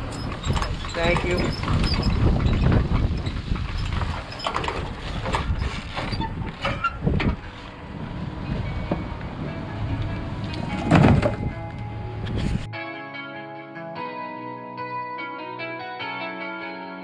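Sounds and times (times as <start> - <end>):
knocks and clatters: 0.0 - 7.6, 8.4 - 11.6
low steady rumble: 0.0 - 12.7.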